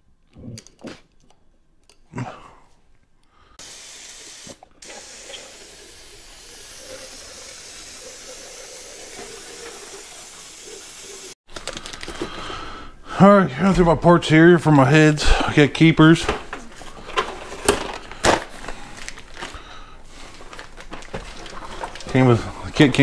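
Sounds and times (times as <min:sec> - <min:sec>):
aerosol spray can hissing: 0:03.6 - 0:11.3.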